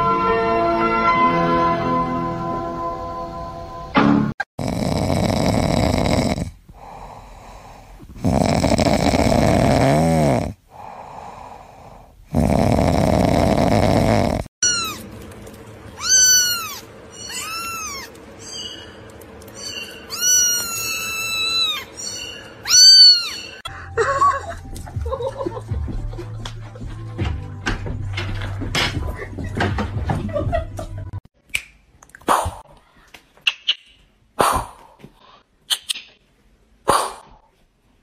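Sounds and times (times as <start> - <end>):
cat snoring: 4.6 - 14.5
kitten meowing: 14.6 - 15.0, 16.0 - 18.1, 20.1 - 21.9, 22.6 - 23.6.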